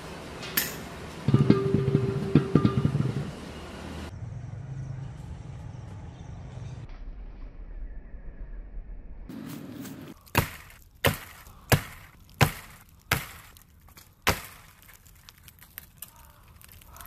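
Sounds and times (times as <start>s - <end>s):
blade chopping tree trunk: 10.1s - 16.1s.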